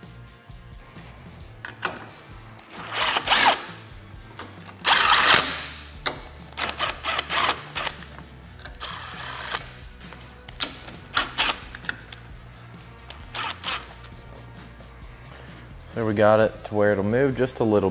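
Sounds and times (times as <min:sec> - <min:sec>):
background music: 0:00.0 - 0:17.9
cordless power driver bursts: 0:02.8 - 0:03.7, 0:04.8 - 0:05.8.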